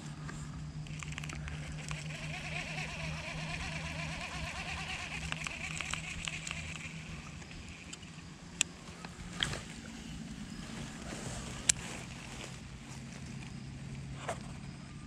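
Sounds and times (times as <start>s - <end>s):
fishing reel whirring: 0.8s - 8.4s
small reel clicks: 0.8s - 9.6s.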